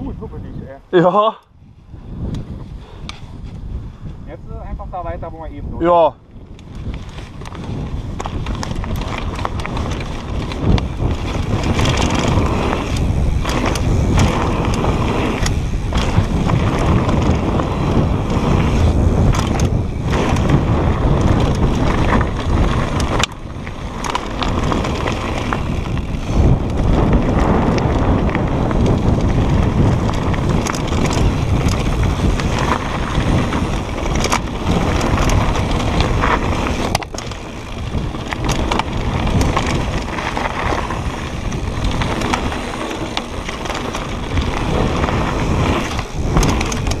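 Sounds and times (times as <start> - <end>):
wind on microphone: 0.0 - 47.0
bike tyres rolling on gravel: 1.7 - 47.0
bike chain and frame rattling: 5.2 - 47.0.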